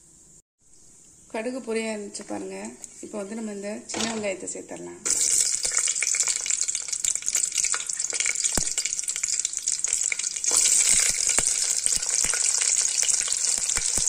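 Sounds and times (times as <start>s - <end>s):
food sizzling in hot oil: 5.0s - 14.0s
sharp popping of seeds: 5.0s - 14.0s.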